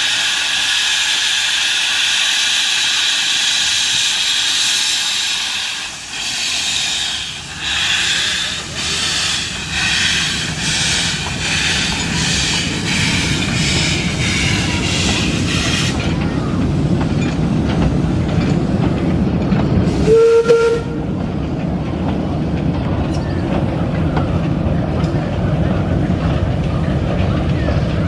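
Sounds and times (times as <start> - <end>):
steam locomotive exhaust chuffs: 0.0 - 18.7
train rumbling on rails: 0.0 - 28.0
train whistle blast: 20.0 - 21.0.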